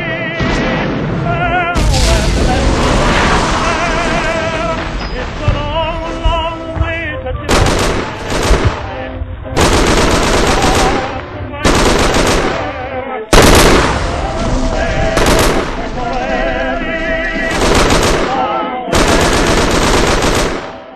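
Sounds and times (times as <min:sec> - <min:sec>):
machine-gun fire bursts: 0:07.5 - 0:16.0, 0:17.4 - 0:20.9.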